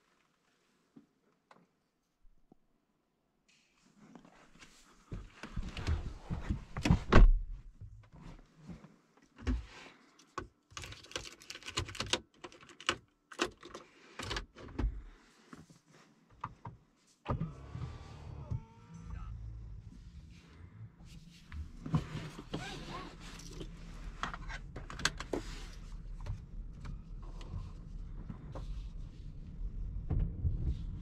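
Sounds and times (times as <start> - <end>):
clicks and handling noises: 21.5 - 27.6.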